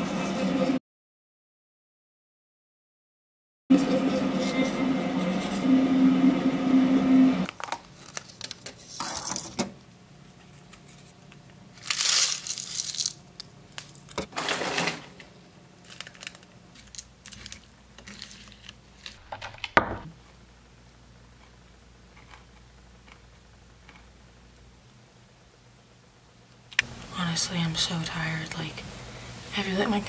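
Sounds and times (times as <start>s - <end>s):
plastic cup crinkling: 7.5s - 9.5s, 10.4s - 15.0s, 15.8s - 19.7s.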